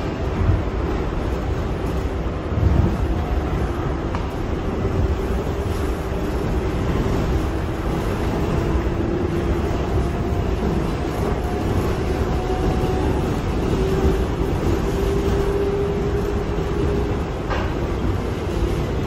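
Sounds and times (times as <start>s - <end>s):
wheels rumbling on rail: 0.0s - 19.0s.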